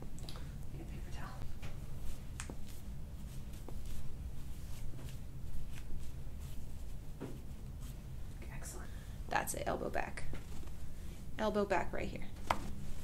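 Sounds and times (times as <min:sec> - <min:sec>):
low room hum: 0:00.0 - 0:13.0
hands and clothing rustling: 0:01.4 - 0:08.6, 0:10.3 - 0:11.3, 0:12.3 - 0:13.0.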